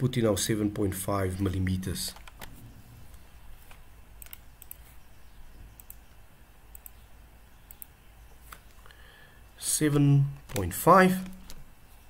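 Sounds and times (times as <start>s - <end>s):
faint low hum: 0.0s - 12.0s
computer mouse clicking: 2.1s - 5.0s, 5.7s - 7.0s, 7.6s - 8.8s.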